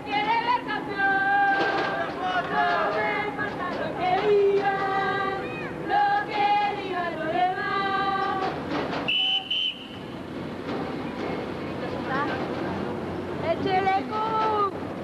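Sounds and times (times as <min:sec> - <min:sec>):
crowd singing a chant: 0:00.0 - 0:08.6.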